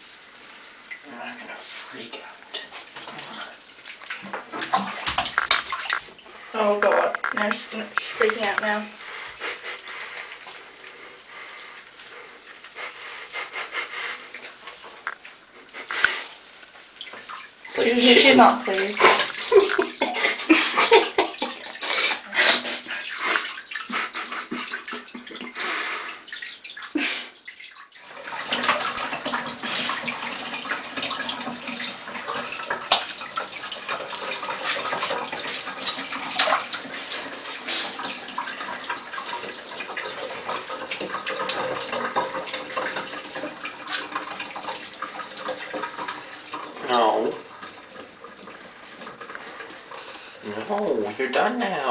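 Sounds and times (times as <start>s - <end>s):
water running into a tub: 0.0s - 51.9s
water splashing in a bathtub: 0.0s - 51.9s.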